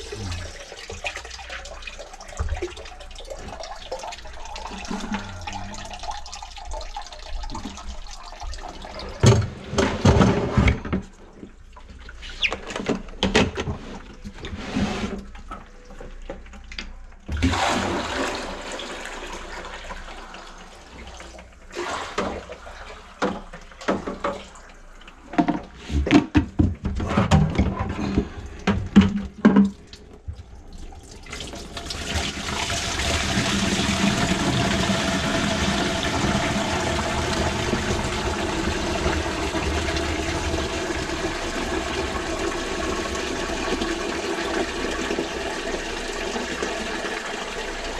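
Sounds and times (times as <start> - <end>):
water pouring and splashing: 0.0 - 26.2, 26.9 - 47.9
plastic bucket knocking: 25.4 - 29.8.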